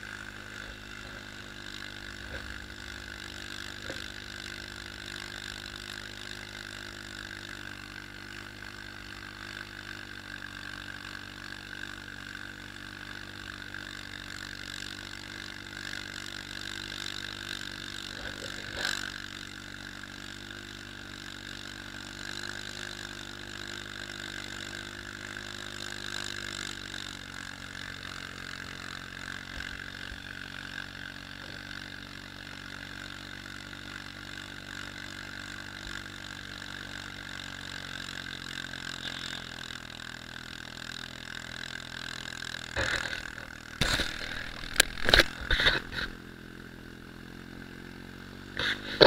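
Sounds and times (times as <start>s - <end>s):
atv engine running: 0.0s - 49.0s.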